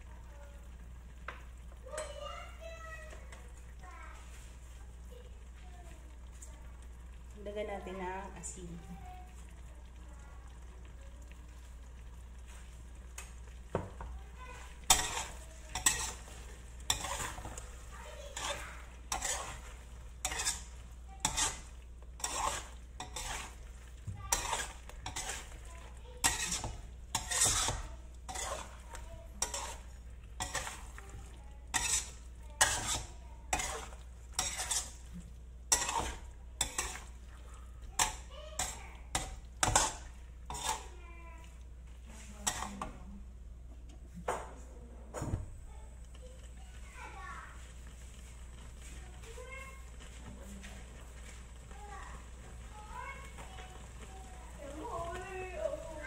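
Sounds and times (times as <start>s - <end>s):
metal spatula scraping wok: 14.6s - 41.0s, 42.1s - 43.0s.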